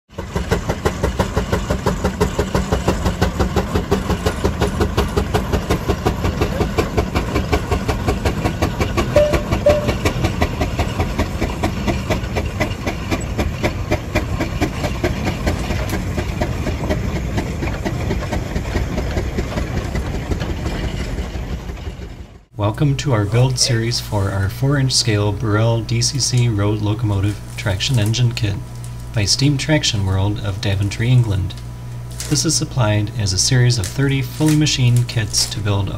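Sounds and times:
steam engine chuffing: 0.1s - 22.4s.

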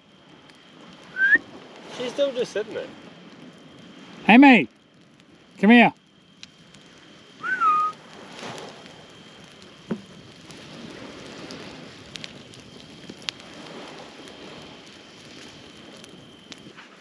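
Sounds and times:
campfire crackling: 0.0s - 17.0s
person whistling: 1.1s - 1.4s, 7.4s - 8.0s.

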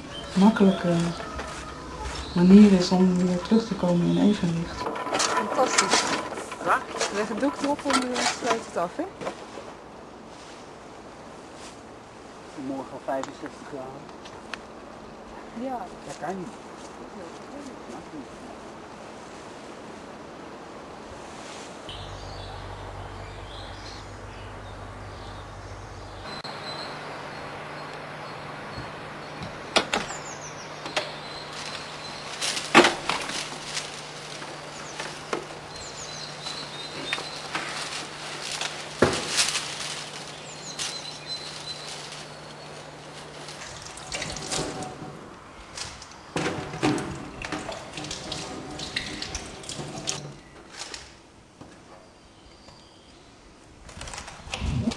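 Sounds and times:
bird chirps: 21.9s - 32.4s, 34.6s - 37.6s
tap water splashing into sink: 46.9s - 50.2s.

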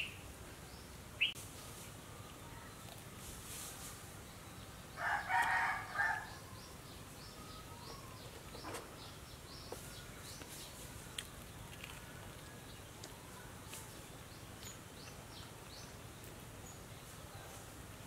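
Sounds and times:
faint bird chirps: 4.1s - 16.0s
rooster crowing: 5.0s - 6.7s.

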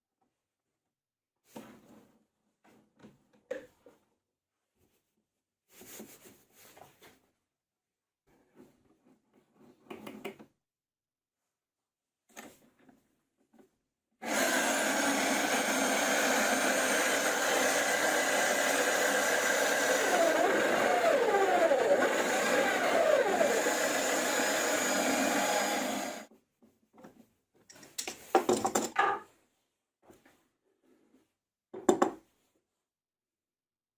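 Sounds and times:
router cutting wood: 14.2s - 26.3s.

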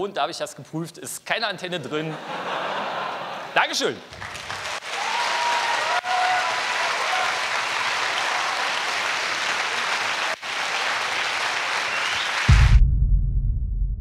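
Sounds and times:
large audience applauding: 4.1s - 12.8s
loud deep bass sound: 12.5s - 14.0s.

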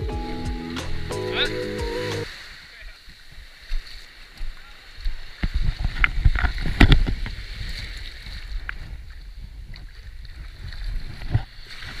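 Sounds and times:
surf washing at shore: 0.0s - 12.0s
wind buffeting microphone: 5.0s - 12.0s.

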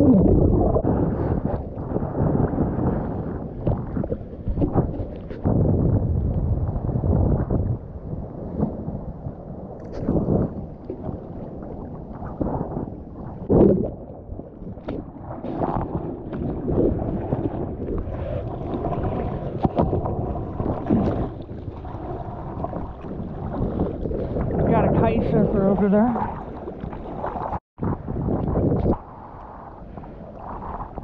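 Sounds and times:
seawater splashing: 9.8s - 27.6s.

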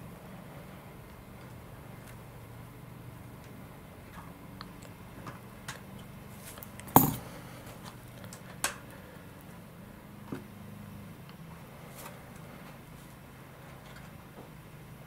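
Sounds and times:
parts clicking and tapping: 6.6s - 7.3s.

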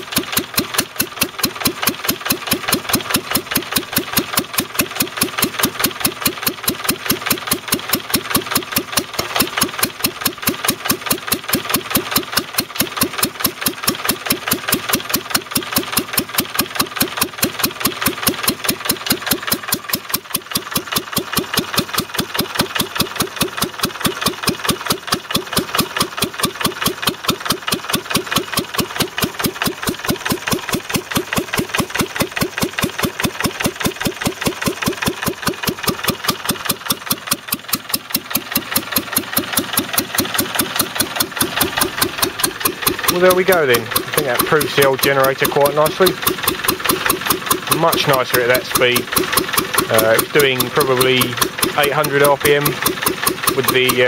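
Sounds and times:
stationary engine running: 0.0s - 54.0s.

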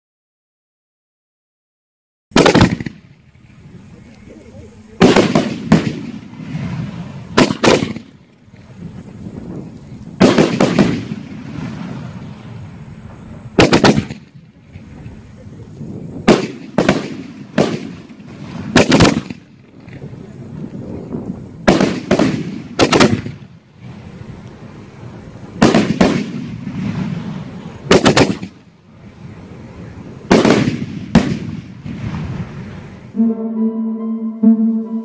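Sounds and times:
firework bangs: 2.3s - 3.2s, 5.0s - 15.0s, 15.9s - 24.2s, 25.4s - 33.2s
music: 33.2s - 35.0s.

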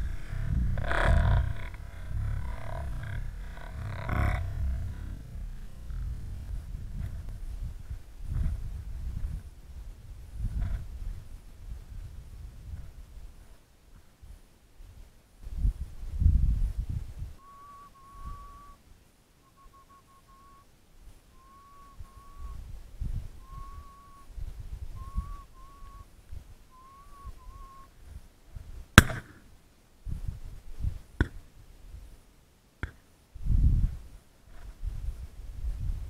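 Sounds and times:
thin whistle: 17.4s - 18.8s, 19.4s - 20.7s, 21.3s - 22.6s, 23.4s - 24.3s, 24.9s - 26.1s, 26.7s - 27.9s
shotgun shot: 29.0s - 29.4s.

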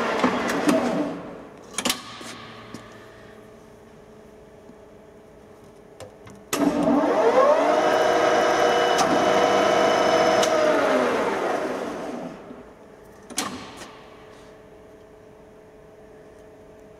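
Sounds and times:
lathe spindle starting with a clunk: 10.2s - 10.7s.

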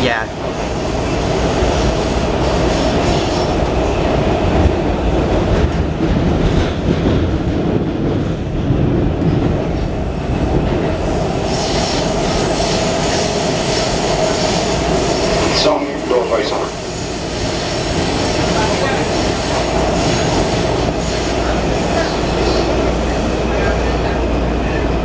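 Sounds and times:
subway car wheels rumbling: 0.0s - 25.0s.

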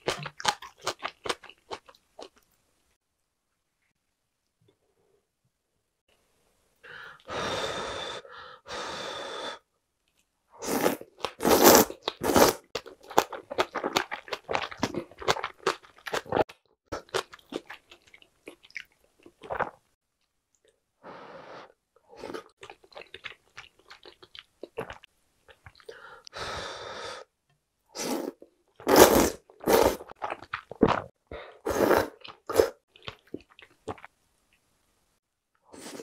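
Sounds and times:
person slurping noodles: 10.6s - 12.6s, 28.0s - 32.8s, 35.8s - 36.0s.

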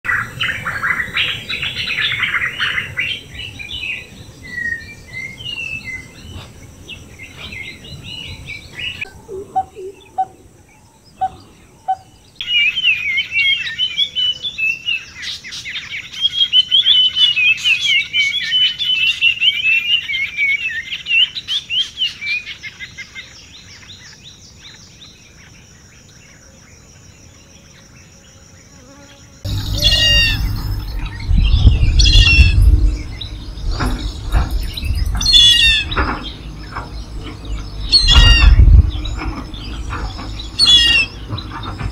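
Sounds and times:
wild birds singing: 0.1s - 41.9s
high insect drone: 25.6s - 41.7s
low rumble: 29.5s - 41.9s.

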